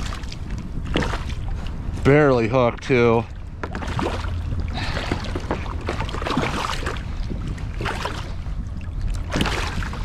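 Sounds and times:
wind rumble on microphone: 0:00.0 - 0:10.0
fish splashing in water: 0:03.7 - 0:07.0, 0:09.2 - 0:10.0.

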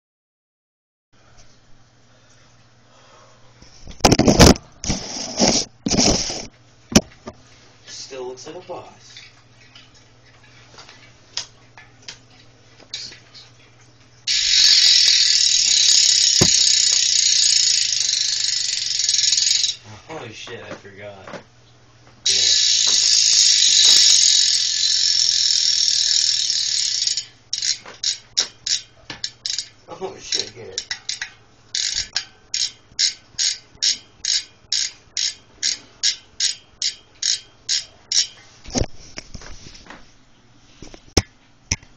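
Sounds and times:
bicycle hub ratchet clicking: 0:14.3 - 0:19.8, 0:22.2 - 0:38.4.

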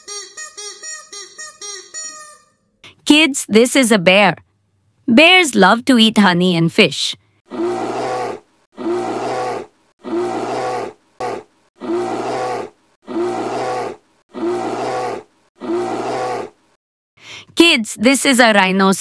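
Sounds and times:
bear roaring growl: 0:07.5 - 0:16.6.

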